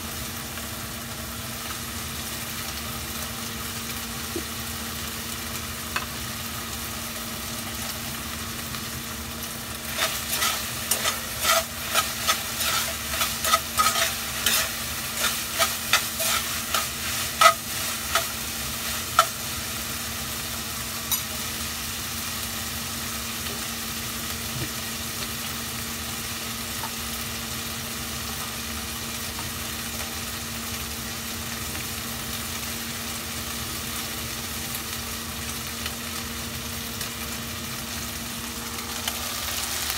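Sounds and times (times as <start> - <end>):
sizzling hiss from pan: 0.0 - 39.9
steady low hum: 6.4 - 21.8
metal spoon scraping saucepan: 10.0 - 18.4.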